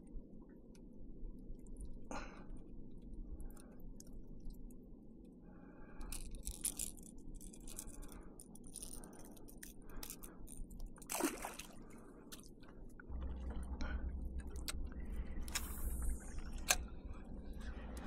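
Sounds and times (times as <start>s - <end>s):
fishing tackle clicks and rustles: 6.0s - 11.7s, 15.4s - 18.0s
low rumble: 13.1s - 18.0s.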